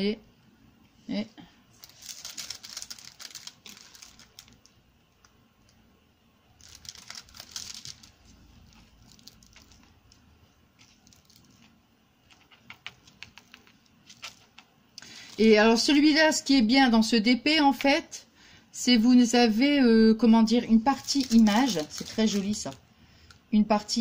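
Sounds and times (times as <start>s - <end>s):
plastic crinkling: 1.7s - 5.8s, 6.6s - 15.9s, 20.6s - 23.4s.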